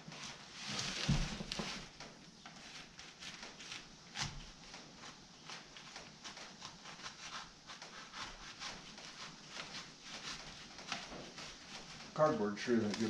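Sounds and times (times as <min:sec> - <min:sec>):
knife slicing cardboard: 0:02.7 - 0:04.6, 0:05.4 - 0:11.8.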